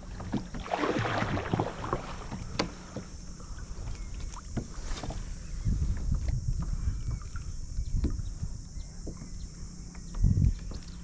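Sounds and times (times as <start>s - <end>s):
paddle splashing water: 0.0s - 5.4s
wind on microphone: 3.8s - 11.0s.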